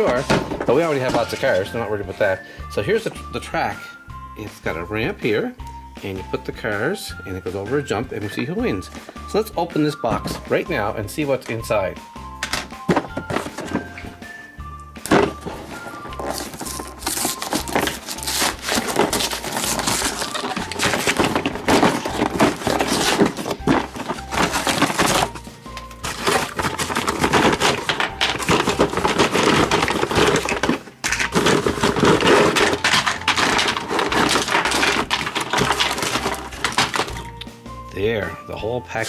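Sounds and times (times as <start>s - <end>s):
plastic pieces knocking: 0.0s - 1.8s, 10.0s - 10.6s, 12.4s - 14.3s, 15.0s - 37.5s
cardboard tearing: 15.1s - 37.3s.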